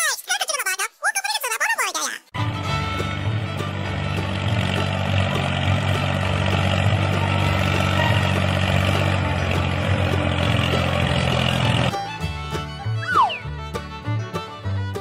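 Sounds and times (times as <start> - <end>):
toy tractor engine rumble: 2.5 - 12.8.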